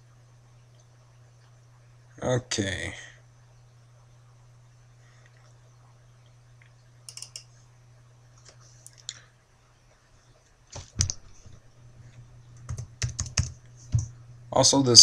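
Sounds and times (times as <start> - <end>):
steady low hum: 0.0 - 15.0
sharp clicks: 7.1 - 7.5.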